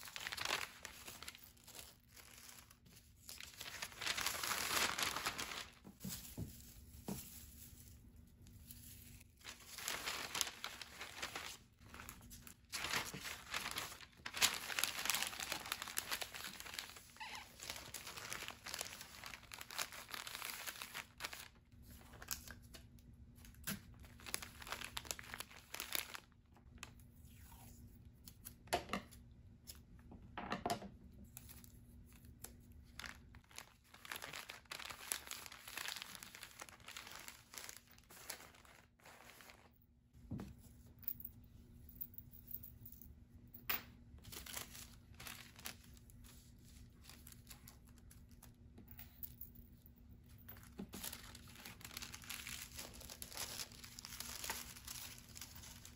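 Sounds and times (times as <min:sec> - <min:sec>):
paper bag crinkling: 0:00.0 - 0:22.3, 0:23.9 - 0:26.3, 0:32.8 - 0:39.7, 0:44.3 - 0:48.5, 0:50.7 - 0:55.9.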